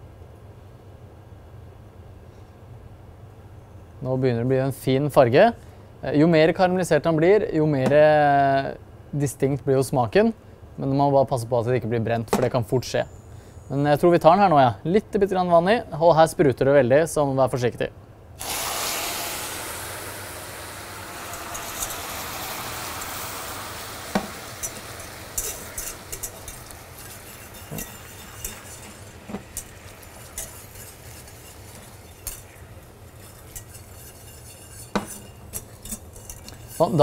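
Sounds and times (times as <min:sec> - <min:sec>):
hot caramel spattering and hissing: 0:18.4 - 0:37.0
whisk clicking against pan: 0:24.0 - 0:37.0.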